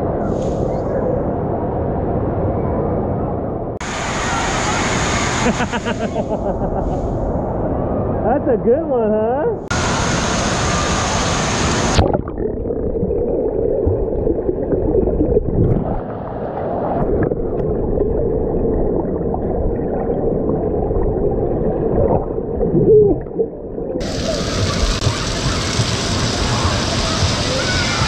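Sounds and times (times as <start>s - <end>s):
underwater gurgling rumble: 9.6s - 28.0s
water splashing: 9.7s - 28.0s.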